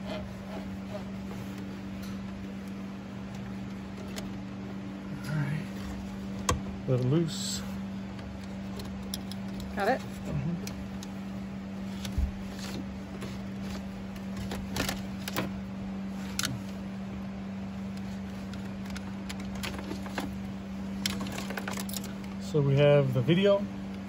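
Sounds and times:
steady low hum: 0:00.0 - 0:24.0
cable rustling: 0:17.7 - 0:22.4.

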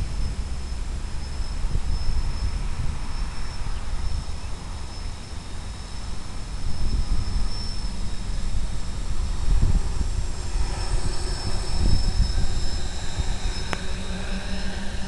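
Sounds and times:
high motor whine: 0:00.0 - 0:15.0
drone propeller rush: 0:05.7 - 0:15.0.

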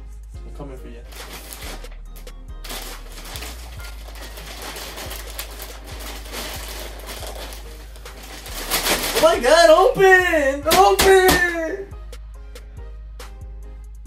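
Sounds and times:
plastic mailer bag crinkling: 0:01.1 - 0:09.9.

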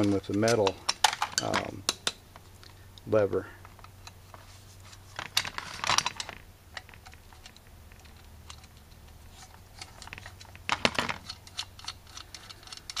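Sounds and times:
screwdriver clicking on metal: 0:06.0 - 0:13.0.

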